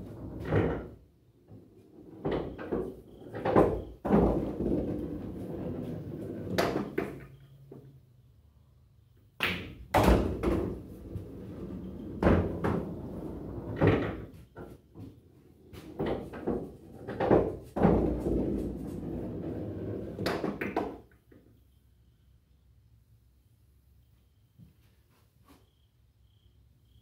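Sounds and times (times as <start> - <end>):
pool balls knocking: 0.0 - 7.3, 9.4 - 15.1, 15.7 - 21.0
balls rolling rumble: 0.0 - 7.4, 9.5 - 21.0.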